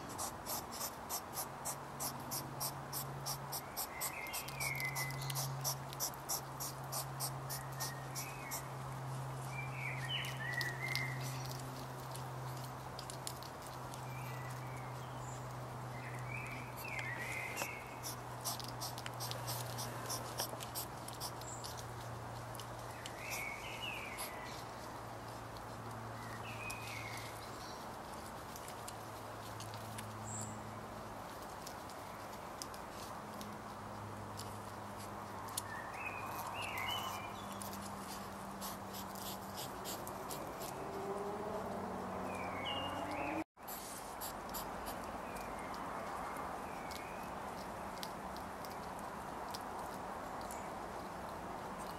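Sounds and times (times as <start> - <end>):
hedgehog chewing clicks: 0.0 - 8.7, 10.1 - 14.8, 15.5 - 23.4, 44.2 - 51.9.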